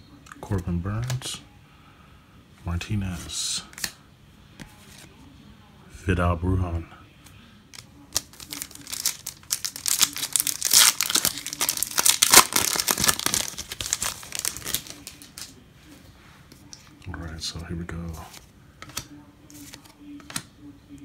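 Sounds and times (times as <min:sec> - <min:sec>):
foil wrapper tearing and crinkling: 0:08.1 - 0:15.5.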